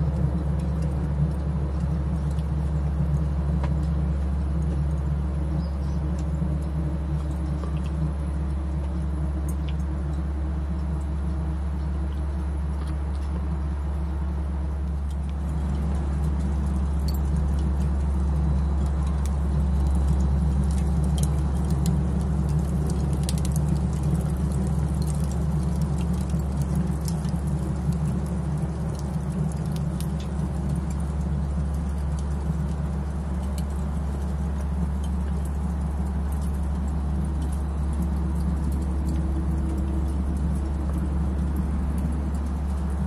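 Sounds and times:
low mechanical hum: 0:00.0 - 0:43.0
charcoal crackling: 0:14.8 - 0:43.0.

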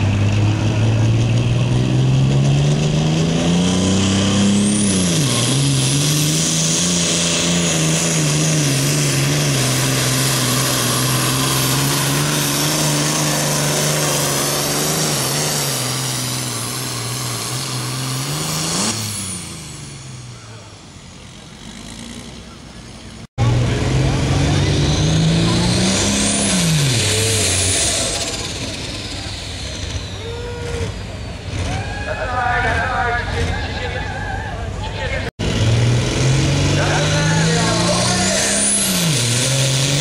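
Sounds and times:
diesel tractor engine at full throttle: 0:00.0 - 0:40.0.

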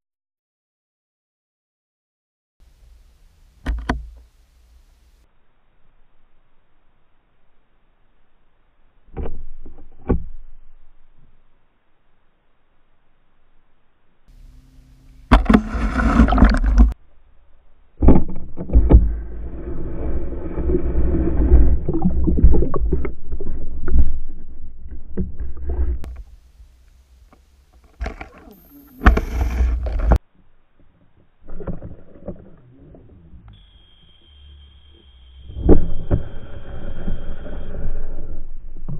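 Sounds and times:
underwater water churning and knocking: 0:15.3 - 0:17.0, 0:20.1 - 0:26.2.

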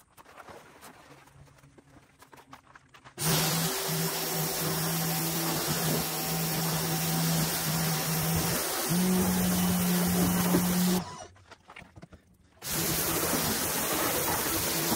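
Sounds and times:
water jet hissing: 0:03.2 - 0:11.2, 0:12.6 - 0:14.9
pressure washer pump hum: 0:03.2 - 0:11.3, 0:12.6 - 0:14.9.

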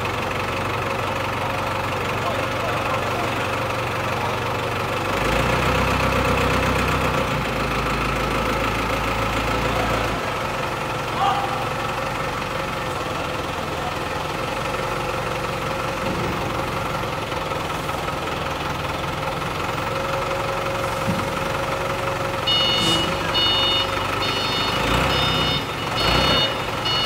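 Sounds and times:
forklift engine running: 0:00.0 - 0:27.0
reversing alarm beeping: 0:22.3 - 0:27.0.

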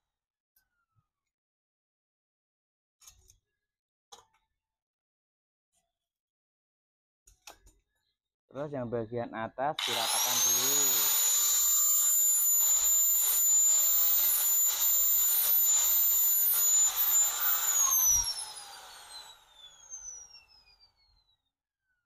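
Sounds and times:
angle grinder grinding steel: 0:09.8 - 0:20.8.

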